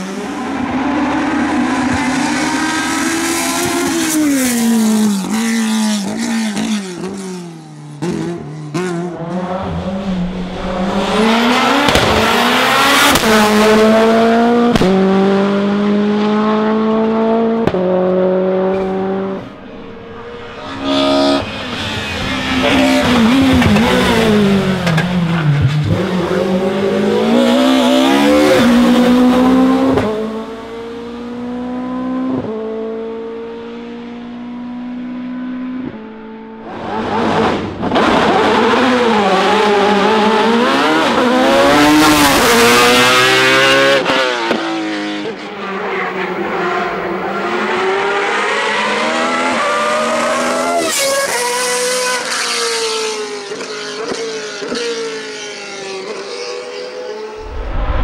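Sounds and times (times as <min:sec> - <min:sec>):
formula car engine revving: 0:00.0 - 0:45.4.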